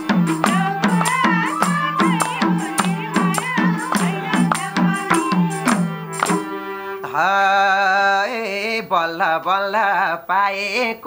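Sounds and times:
hand drum beating: 0.0s - 6.5s
tambourine jingling: 0.0s - 7.0s
harmonium: 0.0s - 9.2s.

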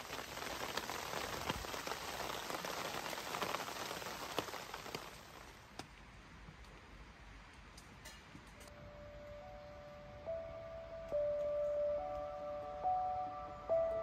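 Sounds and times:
rain pattering on a tarp: 0.0s - 6.8s.

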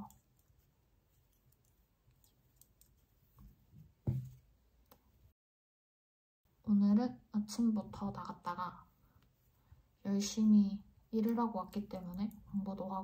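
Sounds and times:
knitting needles clicking: 0.0s - 3.1s, 11.2s - 12.6s
soft knock: 4.0s - 4.4s.

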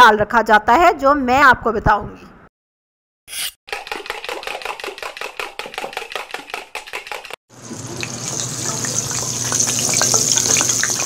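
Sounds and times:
hot oil sizzling: 7.5s - 11.0s.

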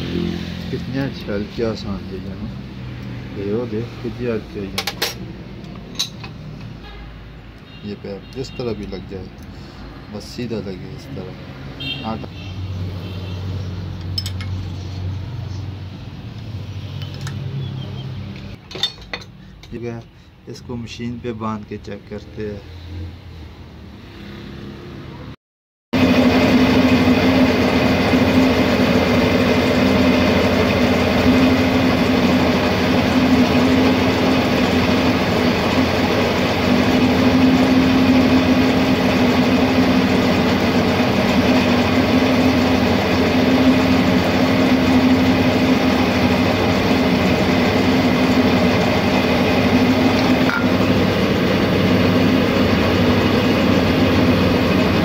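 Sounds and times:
test bench machine humming: 26.0s - 55.0s.

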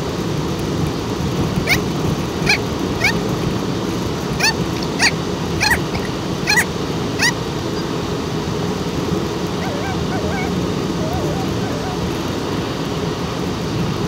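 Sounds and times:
car road and engine noise: 0.0s - 14.0s
high-pitched rising yelps: 2.4s - 3.2s, 4.4s - 7.9s, 9.6s - 12.2s
soft wavering whines: 9.5s - 12.3s.

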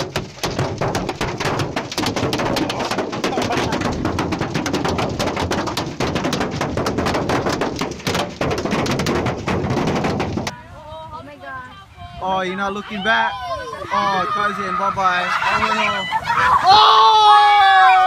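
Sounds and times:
hail clattering on car roof: 0.0s - 10.5s.

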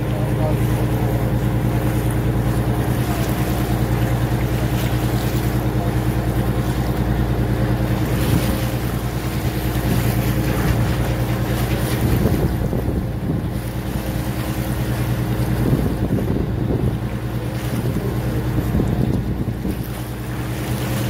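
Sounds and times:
boat engine humming: 0.0s - 21.0s
water noise: 0.0s - 21.0s
wind: 0.0s - 21.0s.

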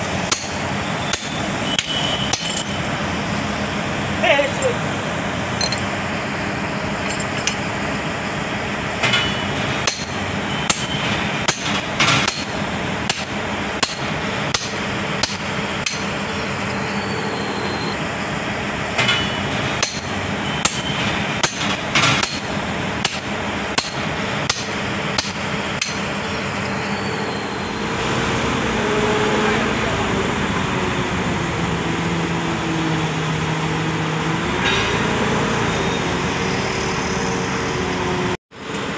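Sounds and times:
machinery hum: 0.0s - 38.9s
hammer striking steel: 0.2s - 2.8s, 9.1s - 16.2s, 19.0s - 26.2s.

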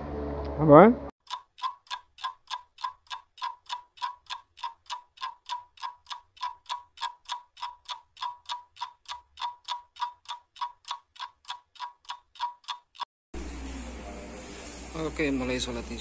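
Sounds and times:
clock ticking: 1.2s - 13.1s.

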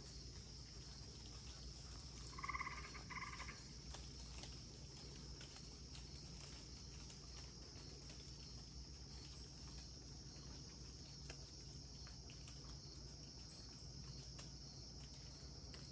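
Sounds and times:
faint ticks: 0.0s - 15.9s
insect high trill: 2.3s - 3.7s.

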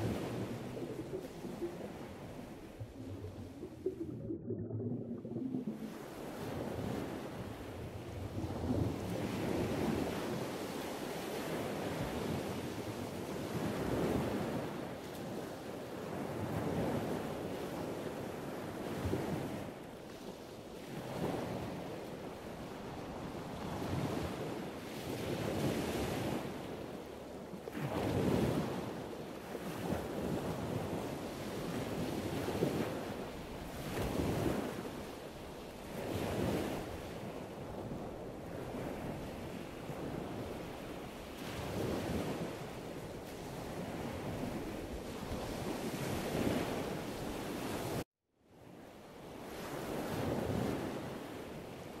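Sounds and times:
ocean surf waves rushing: 0.0s - 7.4s.

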